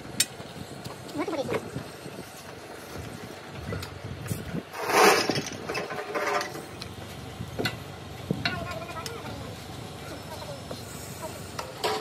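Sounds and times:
low mechanical rumble: 0.0s - 12.0s.

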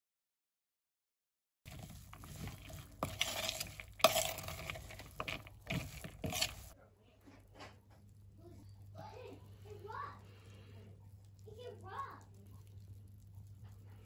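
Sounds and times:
spoon stirring dry mix in bowl: 1.7s - 6.8s, 10.2s - 14.0s.

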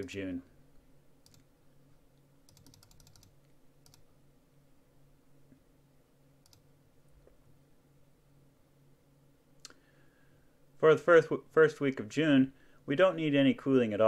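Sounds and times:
faint low hum: 0.0s - 14.0s
computer mouse clicks: 1.2s - 1.5s, 2.5s - 4.1s, 6.4s - 6.7s.

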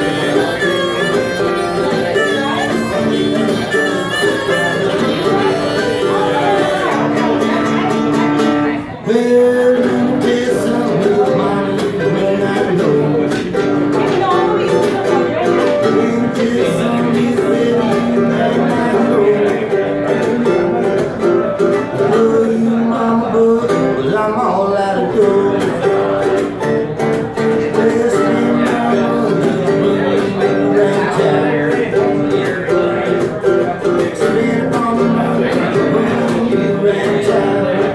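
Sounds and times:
harmonica held notes: 0.0s - 7.9s
cigar box guitar strummed: 0.0s - 37.9s
mandolin picking: 0.0s - 37.9s.

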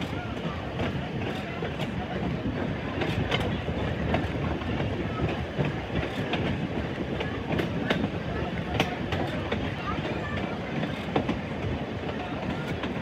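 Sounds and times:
streetcar wheels rumbling: 0.0s - 13.0s
sharp clicks and clacks: 3.0s - 11.4s.

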